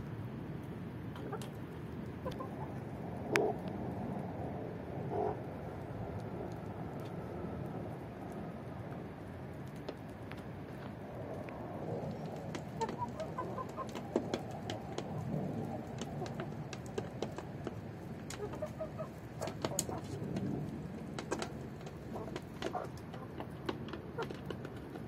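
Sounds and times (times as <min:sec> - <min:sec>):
chickens clucking and chirping: 0:01.2 - 0:01.6, 0:02.2 - 0:02.8, 0:12.2 - 0:15.1, 0:15.9 - 0:17.4, 0:18.3 - 0:20.2, 0:22.1 - 0:24.5
sharp taps and clicks: 0:12.1 - 0:18.6, 0:19.4 - 0:20.5.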